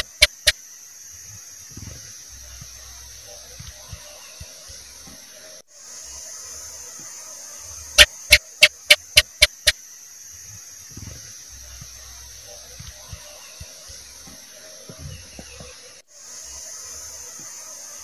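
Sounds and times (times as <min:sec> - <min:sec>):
gecko chirping: 0:00.0 - 0:00.6, 0:08.0 - 0:09.8
steady high hiss: 0:00.0 - 0:18.0.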